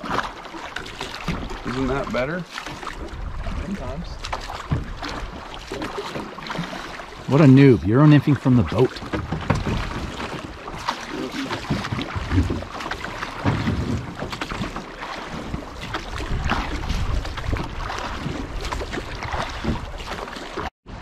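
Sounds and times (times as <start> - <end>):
oars in water: 0.0 - 21.0
water splashing around boat: 0.0 - 21.0
wind buffeting microphone: 3.0 - 5.5, 15.4 - 20.0.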